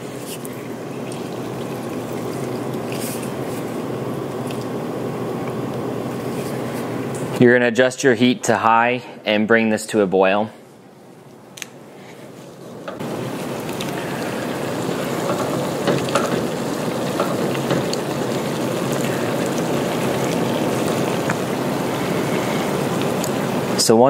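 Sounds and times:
broth bubbling: 0.0 - 5.2, 12.5 - 23.8.

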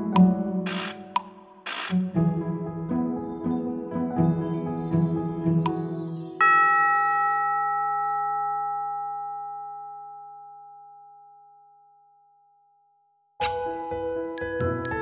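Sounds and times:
mallet percussion music: 3.6 - 8.6, 14.4 - 15.0.

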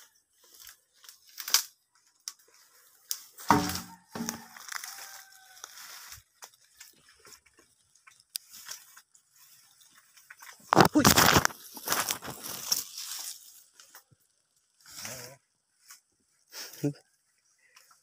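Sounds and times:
footsteps through dry leaves: 0.0 - 7.8, 8.4 - 13.9
vegetation crunching and tearing: 0.5 - 2.4, 3.0 - 7.0, 10.4 - 14.0.

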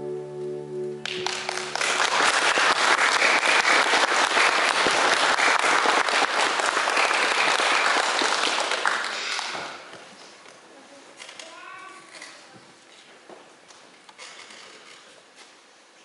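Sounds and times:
band holding final chord: 0.0 - 2.5
audience applause: 1.1 - 9.9.

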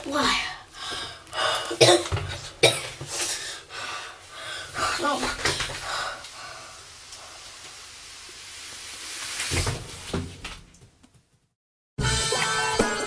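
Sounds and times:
steady hiss: 3.1 - 10.2
music: 12.0 - 13.0.

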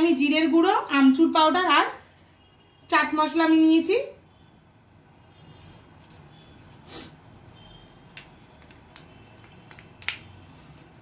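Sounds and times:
glass bowl and spoon clicking: 8.1 - 11.0.

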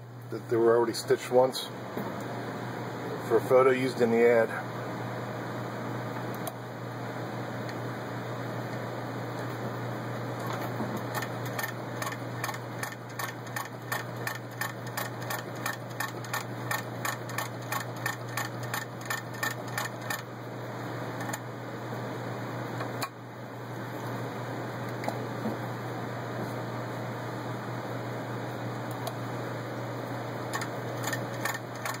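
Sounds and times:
steady low hum: 0.0 - 32.0
sewing machine clicking: 30.5 - 32.0.

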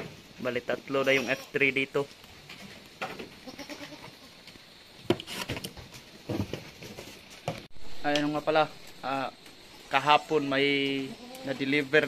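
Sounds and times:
goats bleating: 0.9 - 1.9, 3.4 - 4.4, 11.0 - 12.0.

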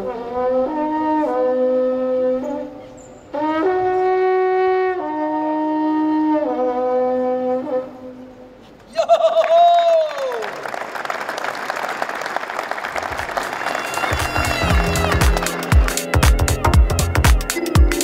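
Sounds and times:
long wooden horn call: 0.0 - 8.7, 13.1 - 17.1.

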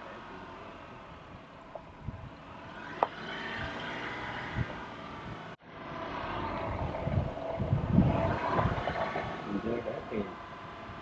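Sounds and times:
vehicle engine droning: 0.0 - 11.0
low bumps: 6.4 - 10.3.

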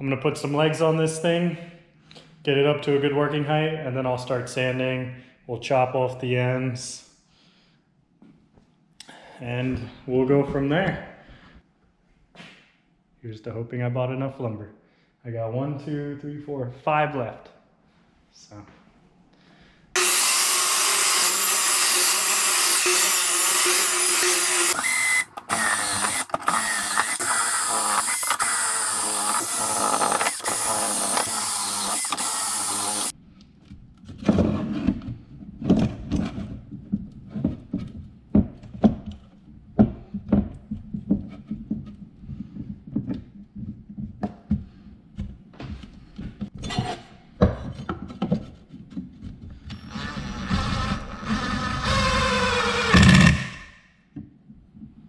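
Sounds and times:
power tool running: 20.0 - 33.1, 49.7 - 53.7.

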